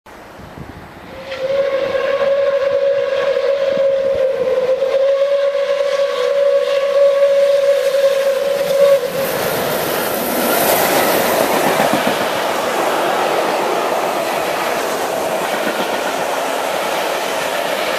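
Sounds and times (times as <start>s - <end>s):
locomotive rushing past: 0.2s - 17.9s
steam whistle blast: 1.0s - 9.8s.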